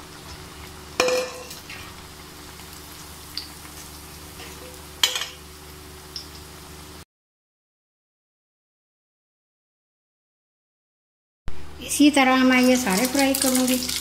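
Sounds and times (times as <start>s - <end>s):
deep-frying sizzle: 0.0s - 7.0s, 11.6s - 14.0s.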